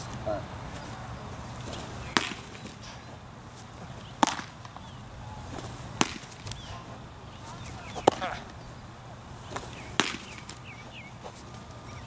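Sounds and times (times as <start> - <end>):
baseball smacking into mitt: 1.6 - 3.0, 4.1 - 6.7, 7.5 - 8.6, 9.5 - 11.4.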